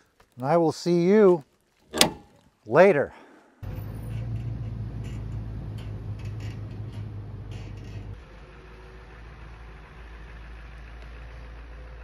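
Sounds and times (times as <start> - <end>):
truck engine drone: 3.6 - 12.0.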